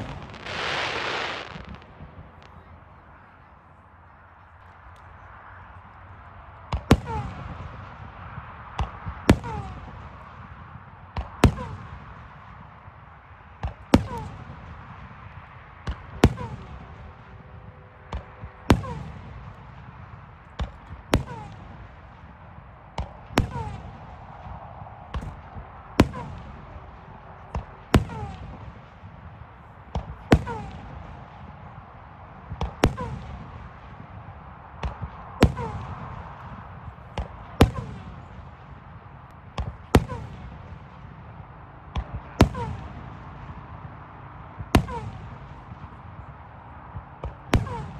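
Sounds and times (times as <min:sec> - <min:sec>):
fireworks bangs: 0:00.0 - 0:03.3
low rumble and hiss: 0:00.0 - 0:47.9.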